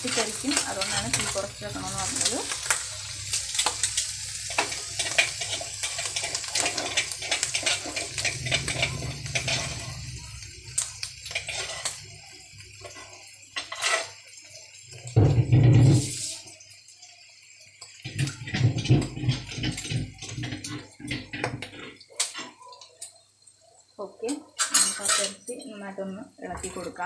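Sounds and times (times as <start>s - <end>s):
spatula scraping frying pan: 0.0s - 10.2s, 11.2s - 12.0s, 12.8s - 14.2s, 18.1s - 22.6s, 24.6s - 25.5s
oil sizzling and crackling: 0.0s - 27.0s.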